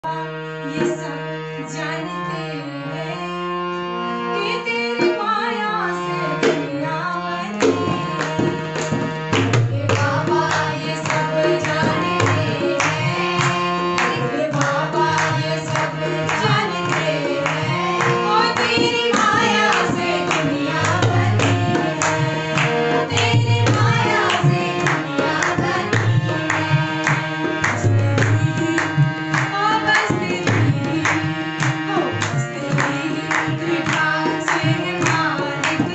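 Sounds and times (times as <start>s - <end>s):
harmonium: 0.0s - 35.9s
woman singing devotional song: 0.0s - 35.9s
dholak drum beat: 7.6s - 35.9s
group clapping: 7.6s - 35.9s.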